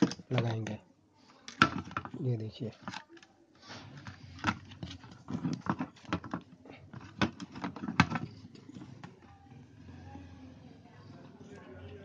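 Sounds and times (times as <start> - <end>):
plastic clicks and knocks: 0.0 - 0.7, 1.5 - 2.2, 4.4 - 8.4.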